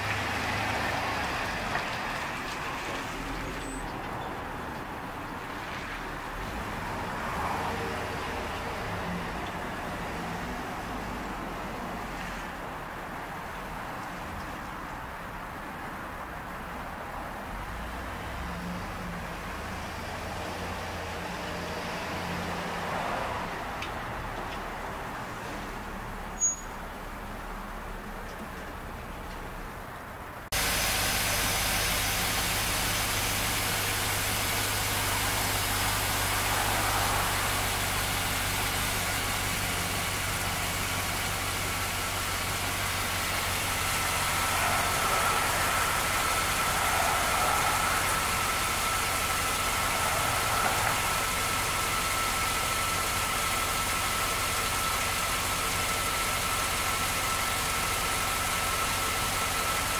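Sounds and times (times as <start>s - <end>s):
pickup engine idling: 30.5s - 59.9s.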